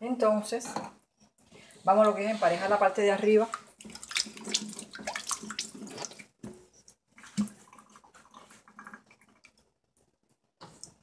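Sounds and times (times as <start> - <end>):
water splashing: 1.9 - 9.6.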